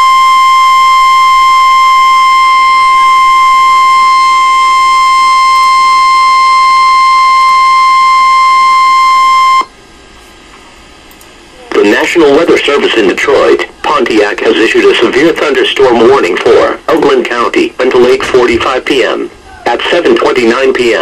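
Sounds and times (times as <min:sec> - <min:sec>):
harsh steady alarm tone: 0:00.0 - 0:09.8.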